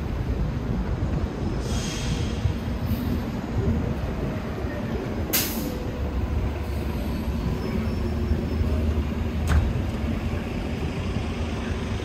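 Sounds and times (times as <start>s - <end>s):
city street traffic rumble: 0.0s - 12.0s
short hiss: 1.6s - 2.4s.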